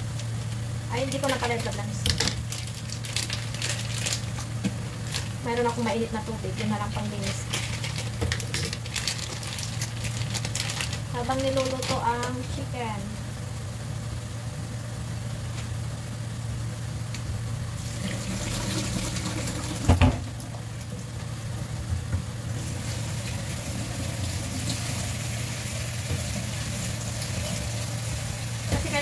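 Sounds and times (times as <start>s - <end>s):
steady low hum: 0.0s - 29.0s
water running from tap: 17.8s - 20.6s, 22.5s - 29.0s.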